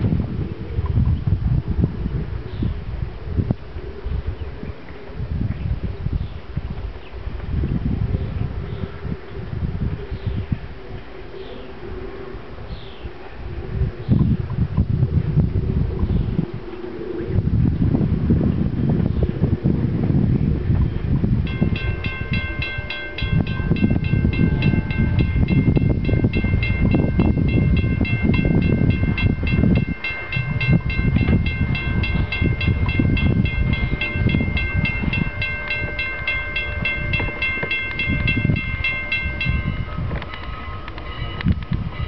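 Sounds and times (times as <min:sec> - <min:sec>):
wind rumble on microphone: 0:00.0 - 0:42.0
railroad crossing bell ringing: 0:21.5 - 0:42.0.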